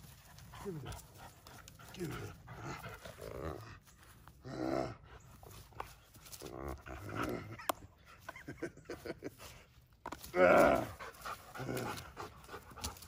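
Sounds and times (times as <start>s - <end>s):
dog growling: 1.8s - 3.8s, 4.4s - 5.2s, 6.4s - 7.6s, 10.4s - 12.5s.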